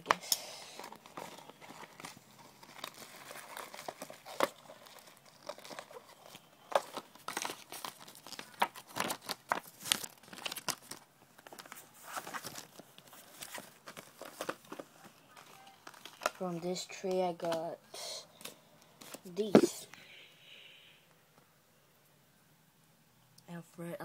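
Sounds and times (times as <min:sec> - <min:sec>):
packaging crinkling: 0:00.8 - 0:16.5.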